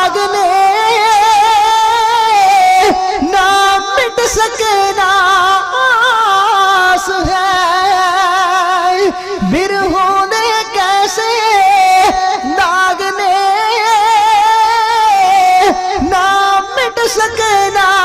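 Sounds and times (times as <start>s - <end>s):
man singing unaccompanied: 0.0s - 18.0s.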